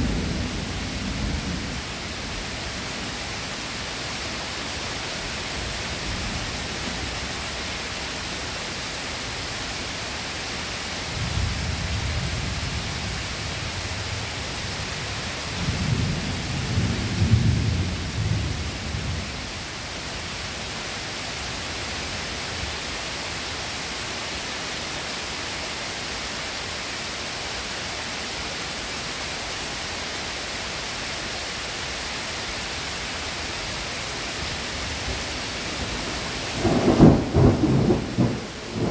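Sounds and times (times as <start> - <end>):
steady rain: 0.0 - 38.9
thunder rumbling: 35.0 - 38.9.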